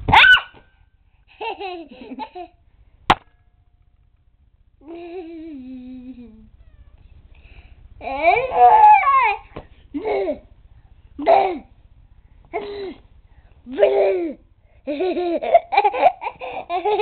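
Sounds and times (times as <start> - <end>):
toddler girl squealing and babbling: 8.0 - 9.4.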